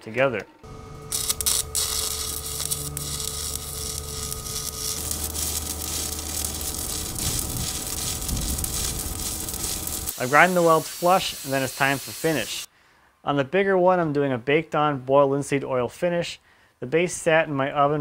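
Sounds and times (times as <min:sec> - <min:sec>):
steady hum: 0:00.6 - 0:10.2
welding arc crackle: 0:00.7 - 0:12.7.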